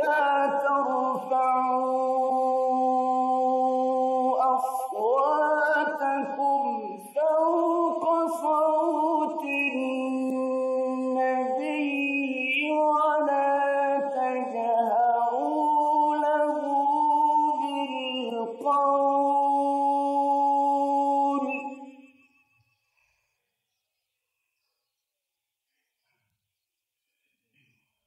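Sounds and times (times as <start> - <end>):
man reciting melodically: 0.0 - 21.6.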